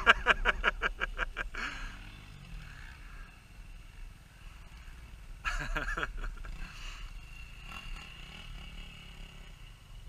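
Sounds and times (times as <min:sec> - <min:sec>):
man laughing: 0:00.0 - 0:02.1, 0:05.4 - 0:06.8
distant motorcycle engines: 0:00.0 - 0:10.0.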